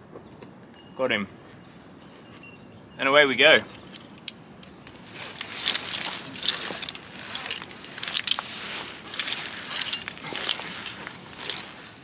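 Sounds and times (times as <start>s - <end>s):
metal climbing gear jangling: 2.0s - 2.6s, 3.6s - 12.0s.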